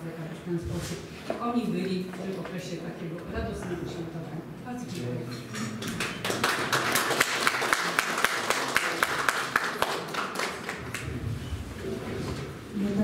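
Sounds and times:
small group applauding: 5.8s - 11.2s.

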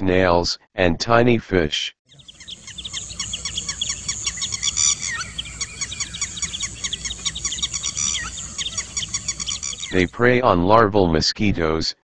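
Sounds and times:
birds chirping: 2.1s - 10.2s.

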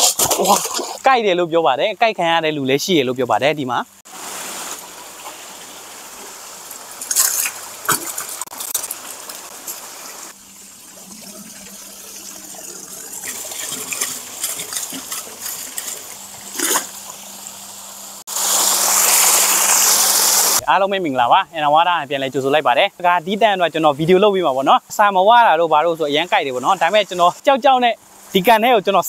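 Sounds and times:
water gushing from a pipe: 4.0s - 20.6s.

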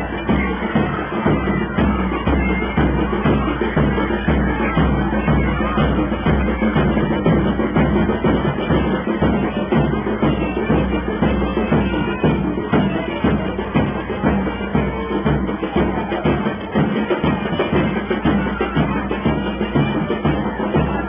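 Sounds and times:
steady drum beat: 0.0s - 21.0s
wind instruments playing: 0.0s - 21.0s.

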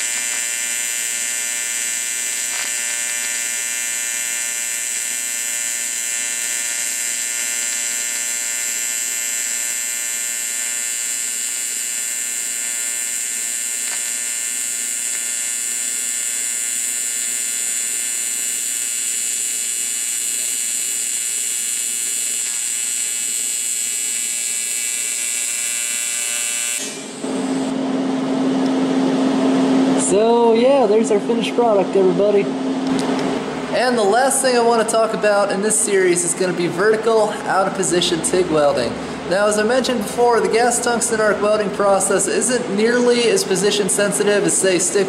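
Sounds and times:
welding arc buzzing: 0.0s - 30.4s, 32.8s - 45.0s.

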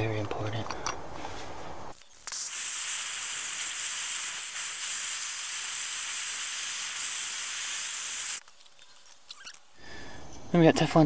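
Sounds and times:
gas torch hissing: 2.3s - 8.4s.

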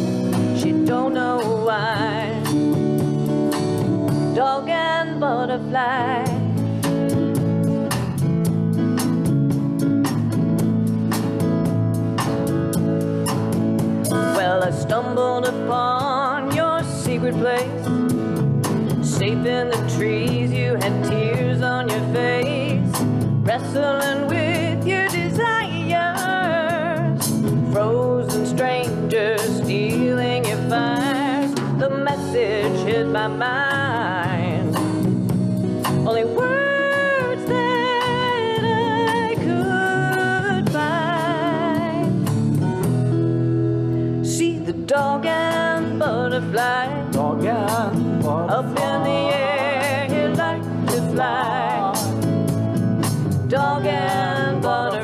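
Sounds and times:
drums: 0.0s - 55.0s
strummed acoustic guitars: 0.0s - 55.0s
woman singing with vibrato: 0.4s - 3.0s, 4.1s - 6.6s, 14.1s - 18.1s, 19.0s - 34.9s, 36.0s - 42.2s, 44.2s - 52.4s, 53.4s - 55.0s.

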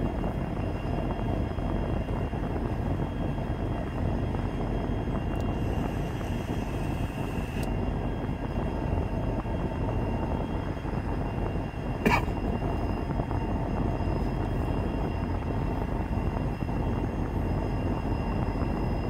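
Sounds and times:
thin high whine: 0.0s - 19.0s.

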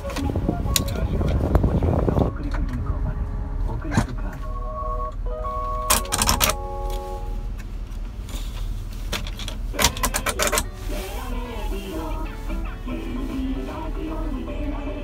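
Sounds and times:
radio talk or music: 0.0s - 6.9s
radio tones: 0.0s - 7.5s
steady low hum: 0.0s - 15.0s.

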